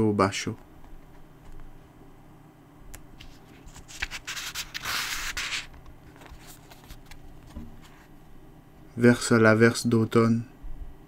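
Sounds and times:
book page rustling: 3.2 - 8.1.

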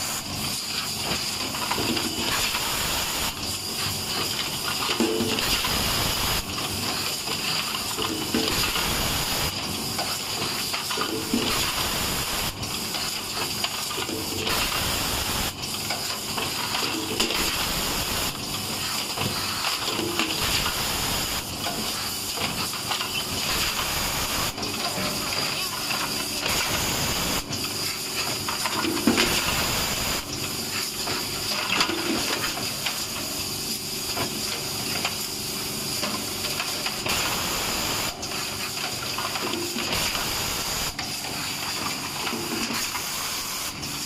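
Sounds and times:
compressed air hiss: 26.5 - 27.5, 42.8 - 44.0.

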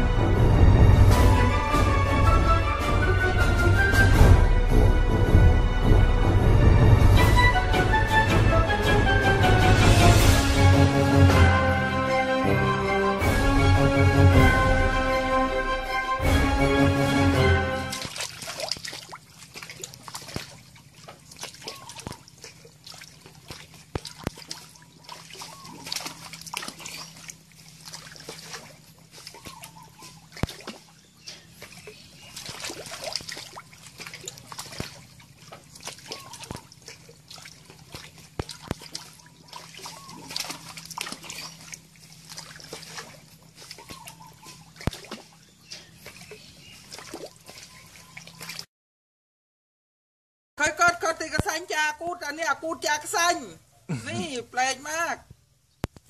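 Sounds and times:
frogs splashing in water: 17.5 - 48.7
low steady hum: 17.8 - 48.5.

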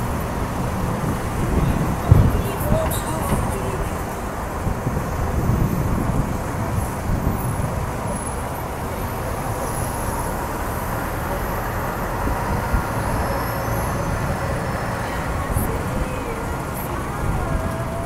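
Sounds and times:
bus pulling away: 0.0 - 18.0.

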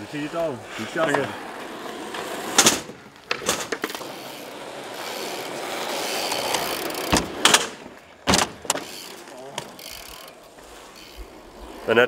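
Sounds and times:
bike rolling on concrete: 0.0 - 12.0
metallic clacks of bike on ramp: 2.6 - 4.4, 6.2 - 10.3.

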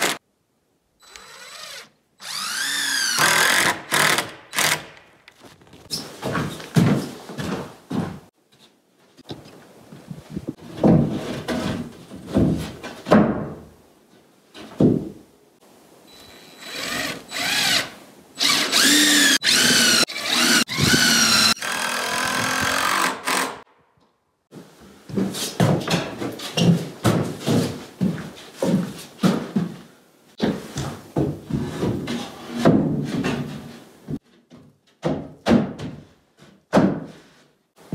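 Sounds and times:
power drill whining: 1.0 - 4.9, 16.2 - 23.6
knocks and thumps: 10.3 - 13.6.

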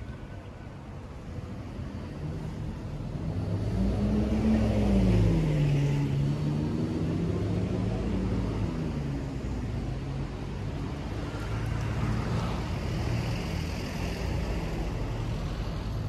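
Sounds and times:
steady traffic noise: 0.0 - 16.0
vehicle passing by: 2.2 - 9.5.

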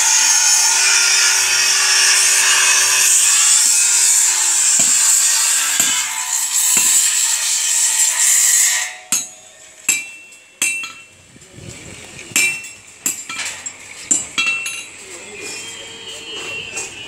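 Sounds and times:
power tool hissing on metal: 0.0 - 9.2.

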